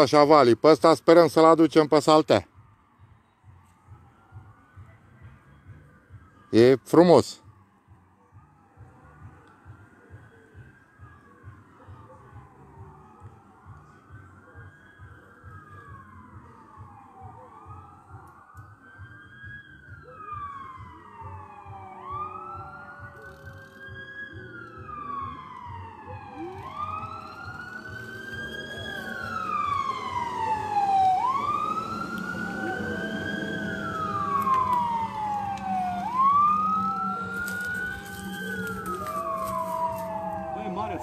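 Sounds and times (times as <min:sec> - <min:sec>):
siren wailing: 0:08.4 - 0:41.0.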